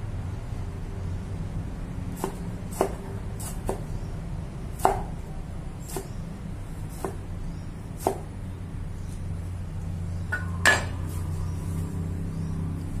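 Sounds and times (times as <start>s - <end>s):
cleaver chopping on wooden board: 2.2s - 3.9s, 4.8s - 5.1s, 6.9s - 7.2s, 8.0s - 8.3s.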